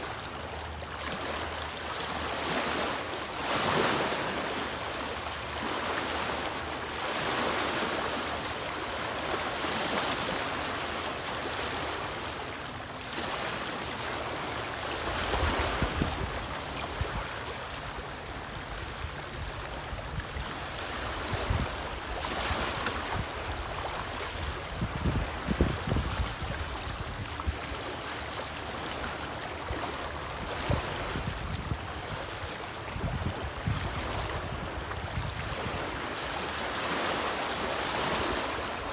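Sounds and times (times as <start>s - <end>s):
waves lapping on rocky shore: 0.0s - 38.9s
low wind rumble on microphone: 15.2s - 17.3s, 18.7s - 22.2s, 22.9s - 27.6s, 30.4s - 36.0s.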